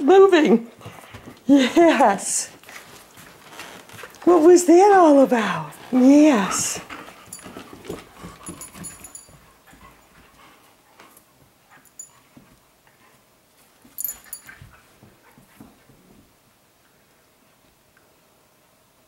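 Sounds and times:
dogs scuffling: 0:00.5 - 0:16.4
jingling: 0:07.1 - 0:10.3, 0:13.9 - 0:14.8.

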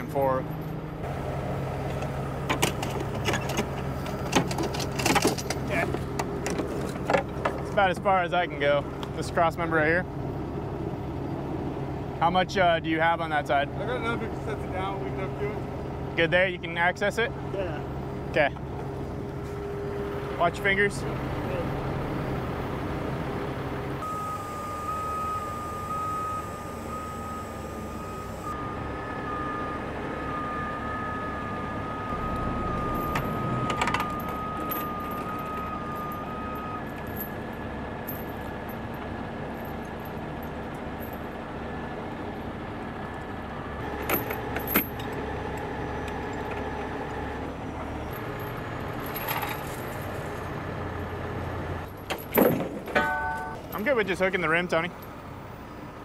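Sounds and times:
heavy diesel equipment running: 0:00.0 - 0:56.0
metal chains clanking: 0:02.5 - 0:06.0, 0:32.1 - 0:41.4, 0:43.9 - 0:45.2, 0:48.0 - 0:50.4
repeated beeping: 0:24.0 - 0:37.4.

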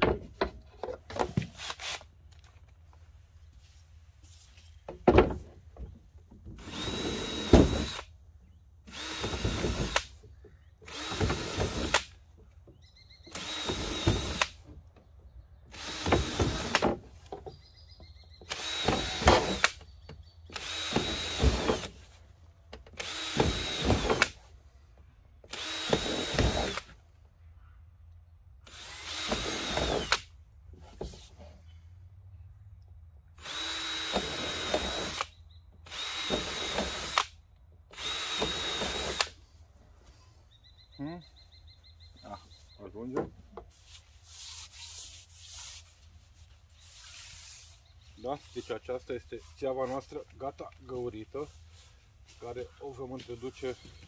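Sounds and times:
electric drill boring plastic: 0:06.6 - 0:08.0, 0:08.9 - 0:10.1, 0:10.9 - 0:12.1, 0:13.3 - 0:14.6, 0:15.8 - 0:16.8, 0:18.5 - 0:19.8, 0:20.5 - 0:22.0, 0:23.0 - 0:24.4, 0:25.5 - 0:26.9, 0:28.7 - 0:30.2, 0:33.4 - 0:35.3, 0:35.9 - 0:37.3, 0:37.9 - 0:39.4.

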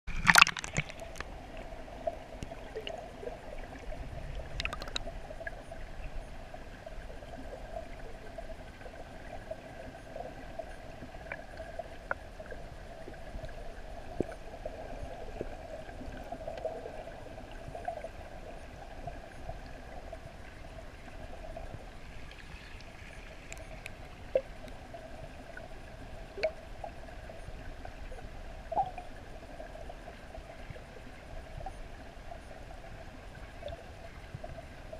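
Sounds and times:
water gurgling: 0:00.1 - 0:34.9
sharp clicks and taps: 0:04.6 - 0:05.1.

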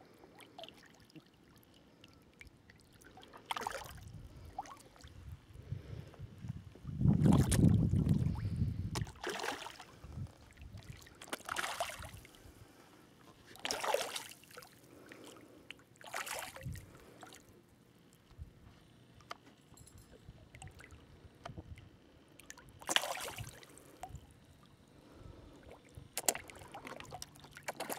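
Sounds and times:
fish splashing at surface: 0:09.0 - 0:09.9, 0:13.6 - 0:14.4, 0:22.8 - 0:23.6.

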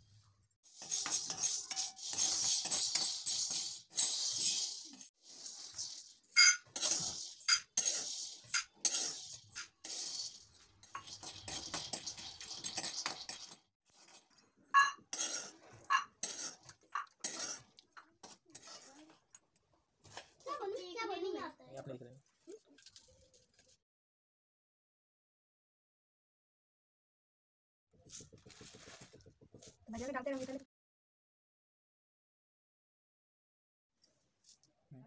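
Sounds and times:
grains pouring into metal bowl: 0:00.7 - 0:14.2.

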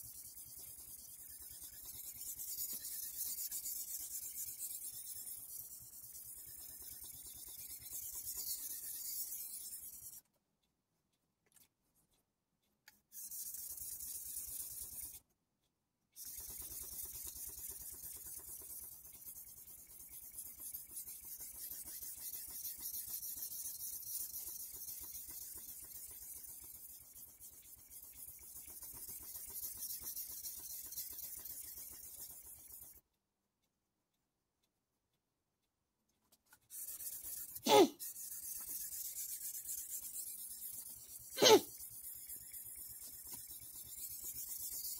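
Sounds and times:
knife scraping on whetstone: 0:00.2 - 0:06.8, 0:16.3 - 0:32.8, 0:36.7 - 0:44.9.

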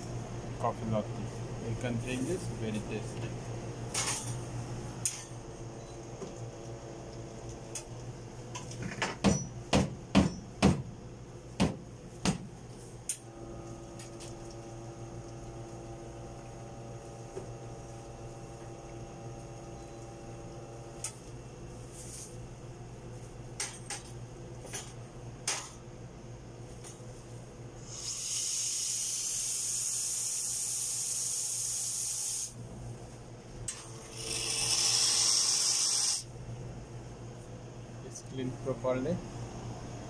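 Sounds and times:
espresso machine humming: 0:04.5 - 0:08.5, 0:13.2 - 0:23.0, 0:27.7 - 0:32.6, 0:33.7 - 0:40.0.

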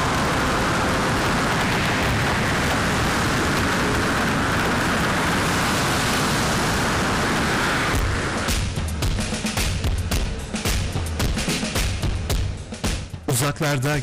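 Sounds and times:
rush of wind: 0:00.0 - 0:11.1
churning sea: 0:00.0 - 0:12.7
music with drum hits: 0:08.5 - 0:13.3.

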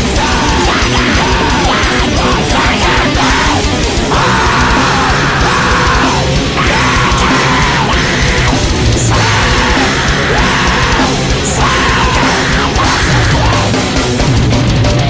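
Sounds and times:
heavy rock music: 0:00.0 - 0:15.0.

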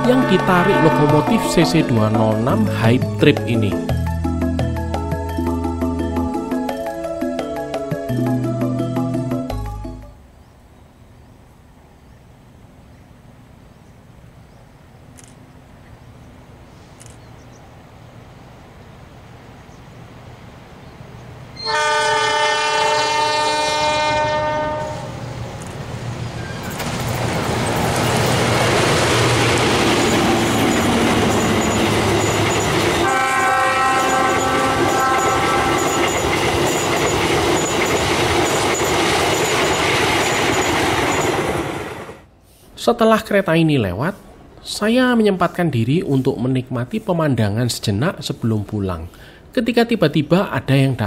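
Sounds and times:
locomotive horn: 0:00.0 - 0:03.0, 0:21.6 - 0:25.2, 0:32.9 - 0:36.1
train rumble: 0:00.0 - 0:06.4, 0:12.6 - 0:42.3.

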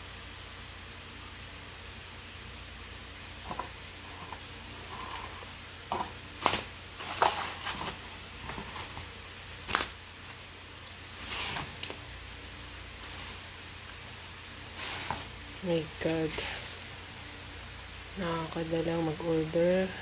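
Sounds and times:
steady low hiss: 0:00.0 - 0:20.0
cardboard and plastic rustling: 0:03.4 - 0:10.5, 0:11.1 - 0:12.1, 0:13.0 - 0:13.6, 0:14.6 - 0:16.9.

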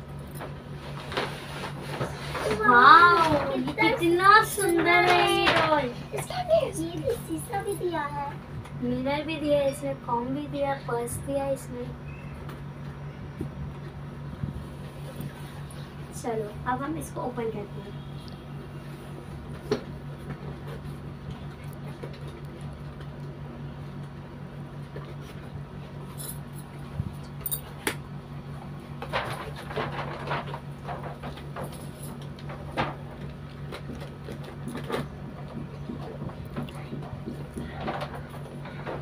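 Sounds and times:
steady low hum: 0:00.0 - 0:39.0
cardboard box rustling and scraping: 0:00.8 - 0:03.8.

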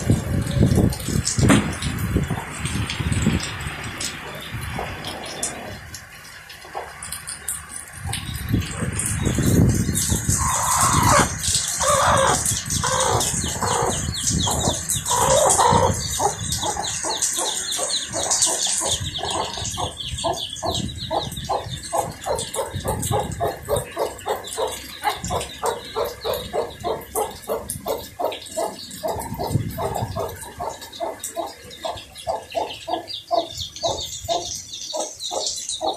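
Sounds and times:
hen clucking: 0:06.6 - 0:07.2, 0:10.1 - 0:35.9.

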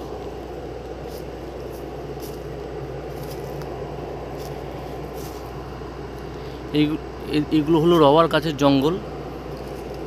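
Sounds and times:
footsteps crunching on dry leaves: 0:00.0 - 0:06.6, 0:09.4 - 0:10.0
steady microphone noise: 0:00.0 - 0:10.0.

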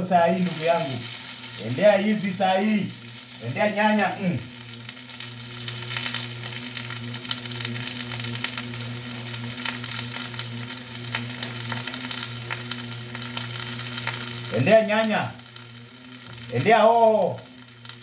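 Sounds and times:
onions sizzling in oil: 0:00.0 - 0:18.0.

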